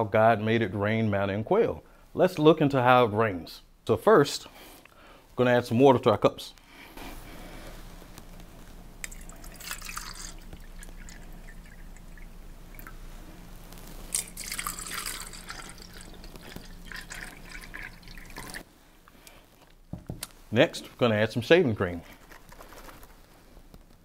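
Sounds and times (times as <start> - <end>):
water pouring into plastic cups: 9.0 - 13.0, 14.1 - 18.7.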